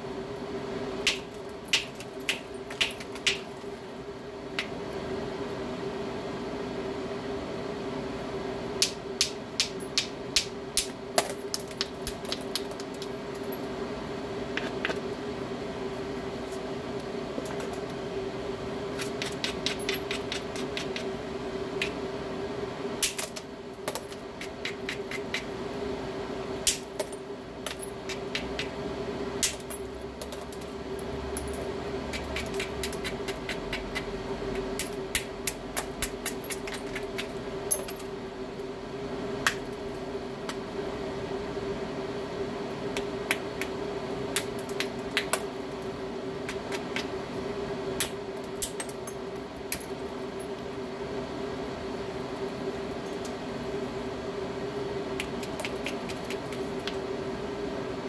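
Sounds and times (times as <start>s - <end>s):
steady hum: 0.0s - 58.0s.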